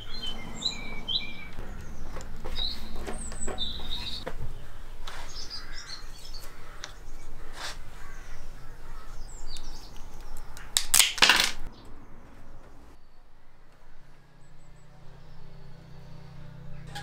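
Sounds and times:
birds chirping: 0:00.0 - 0:10.9, 0:11.6 - 0:17.0
bicycle parts clicking and rattling: 0:09.6 - 0:11.7.

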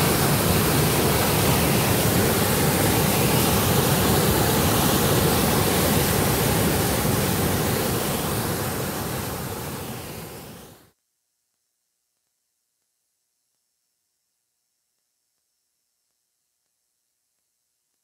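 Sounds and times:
water gushing down a channel: 0:00.0 - 0:10.3.

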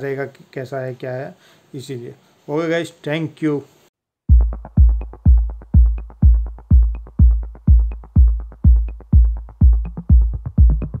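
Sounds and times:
electronic dance music: 0:04.3 - 0:11.0
fast ticking percussion: 0:04.3 - 0:11.0
heavy kick drum: 0:04.3 - 0:11.0.

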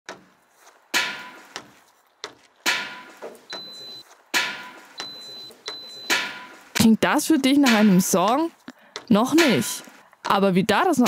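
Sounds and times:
boot kicking skylight dome: 0:00.1 - 0:05.2
printer beeping: 0:03.0 - 0:06.8.

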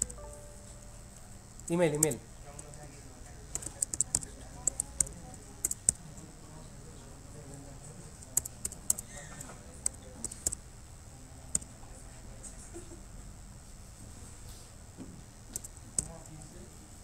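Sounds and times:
low room hum: 0:00.0 - 0:17.0
keyboard key clicks: 0:03.5 - 0:06.0.

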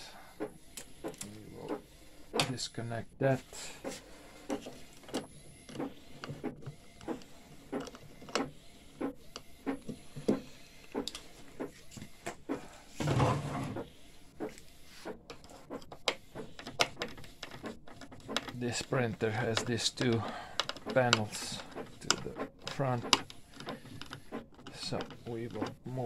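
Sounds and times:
scraping rub: 0:08.9 - 0:20.1
screwdriver being handled: 0:14.5 - 0:26.0.

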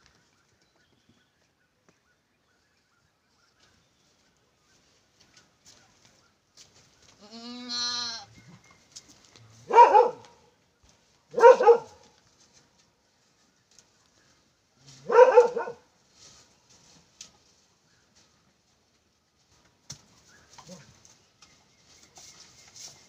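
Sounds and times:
goat kid bleating: 0:07.2 - 0:08.3.

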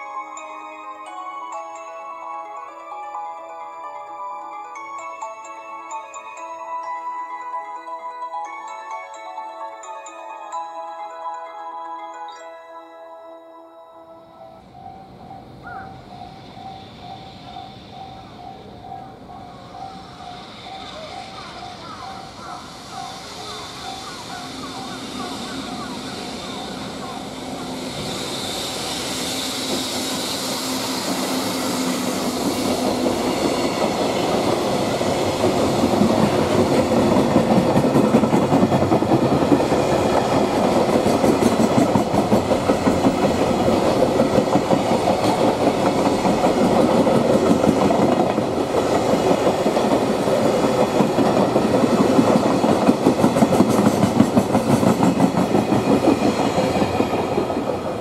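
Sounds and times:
freight train wheels rumbling: 0:14.6 - 0:58.0
clickety-clack over rail joints: 0:31.0 - 0:58.0.

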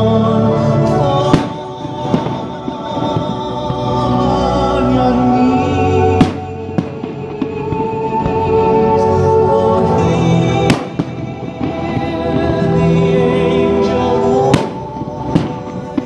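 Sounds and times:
music soundtrack: 0:00.0 - 0:16.0
sharp firework bangs: 0:01.3 - 0:03.9, 0:06.2 - 0:08.5, 0:10.6 - 0:12.7, 0:14.4 - 0:16.0.

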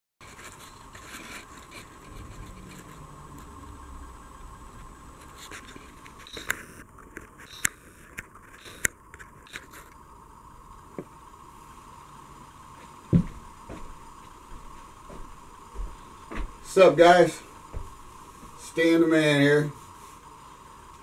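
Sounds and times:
faint steady hum: 0:00.2 - 0:21.0
sharp clicks: 0:06.0 - 0:10.0.

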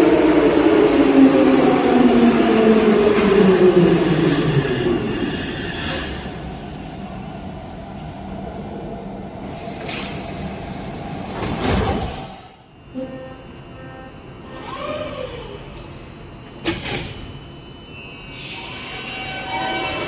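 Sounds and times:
metro train motor whine: 0:00.0 - 0:20.0
train doors sliding open: 0:09.4 - 0:12.5.

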